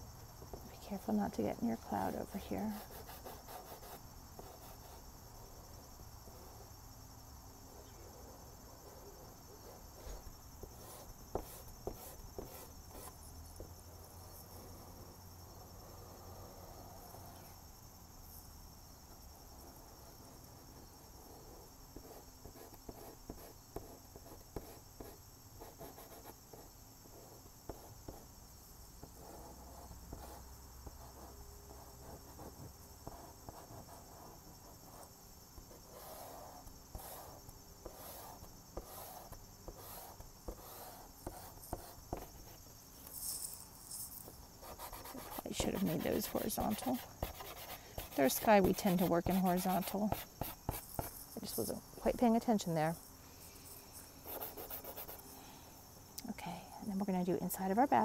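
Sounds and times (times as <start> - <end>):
faint high-pitched whine: 0.0 - 58.0
chalk pastel scratching on paper: 2.6 - 5.0, 21.5 - 28.2, 44.6 - 51.7, 54.2 - 55.2.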